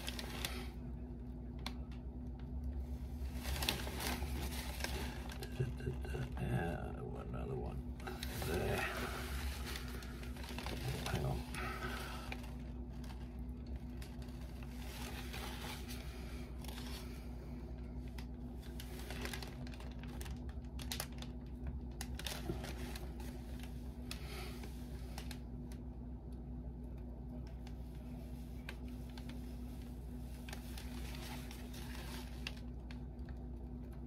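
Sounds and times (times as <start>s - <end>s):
low hum with faint tone: 0.0s - 34.0s.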